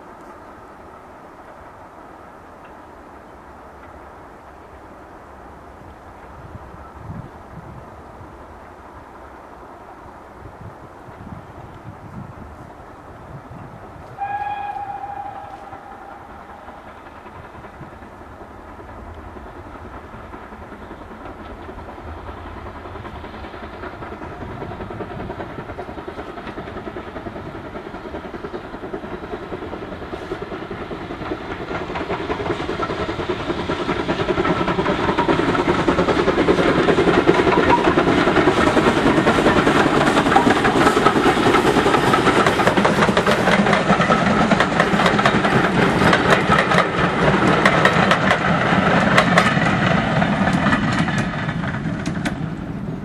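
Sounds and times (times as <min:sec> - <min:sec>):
coaches rumbling on rails: 0:00.0 - 0:53.0
steam locomotive exhaust: 0:00.0 - 0:53.0
steam locomotive whistle: 0:14.1 - 0:17.3.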